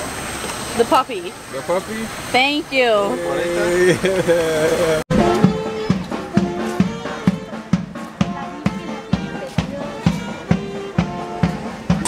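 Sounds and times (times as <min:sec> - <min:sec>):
background music instrument lines: 0:03.0 - 0:12.0
drum kit beat: 0:03.6 - 0:12.0.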